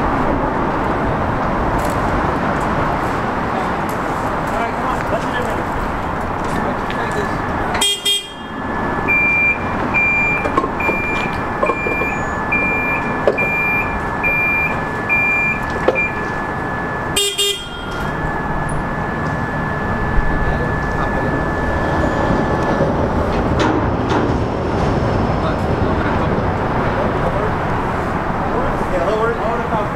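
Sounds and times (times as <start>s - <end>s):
diesel engine running: 0.0s - 29.9s
electronic warning beeper: 8.0s - 23.5s.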